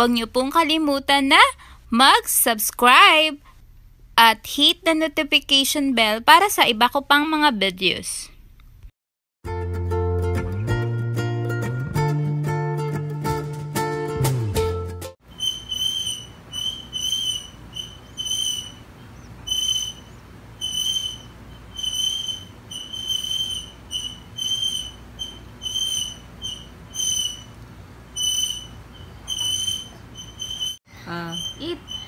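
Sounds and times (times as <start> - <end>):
sippy cup squeaking whistles: 15.3 - 18.8, 19.5 - 27.6, 28.2 - 32.0.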